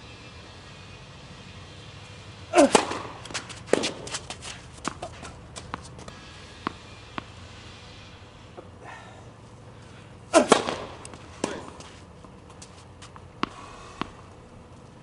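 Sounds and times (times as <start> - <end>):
person shouting: 2.6 - 2.9
tennis ball hit: 2.6 - 7.4, 10.3 - 12.0, 13.4 - 14.2
tennis ball bouncing: 2.6 - 7.6, 10.3 - 14.4.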